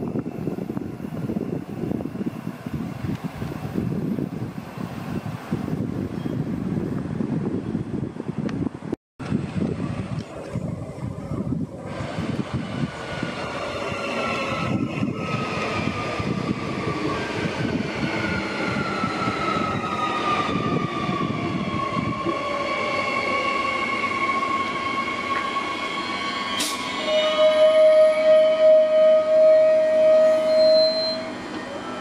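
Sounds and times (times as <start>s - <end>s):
train wheels rumbling on rails: 0.0s - 32.0s
train motor whine: 23.9s - 32.0s.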